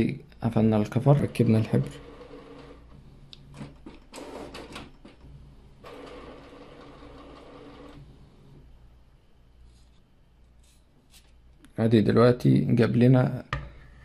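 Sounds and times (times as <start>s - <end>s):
printer motors whirring: 1.2s - 8.7s.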